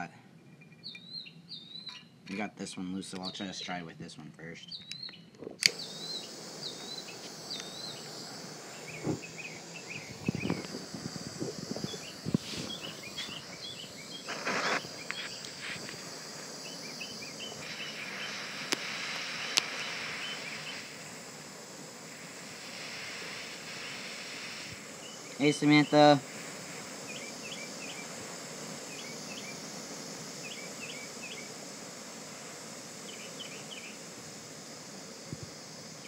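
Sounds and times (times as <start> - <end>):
small birds chirping: 0.0 - 36.0
butane torch hissing: 4.6 - 36.0
sharp clicks: 4.7 - 6.0, 7.2 - 8.0, 17.6 - 20.8.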